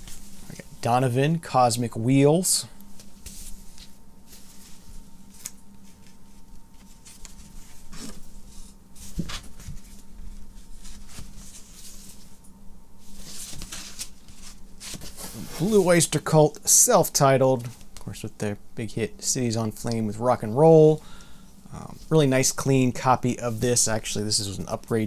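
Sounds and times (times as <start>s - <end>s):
faint steady hum: 0.0s - 25.0s
cardboard record sleeve rustling: 2.9s - 12.4s, 13.0s - 16.2s.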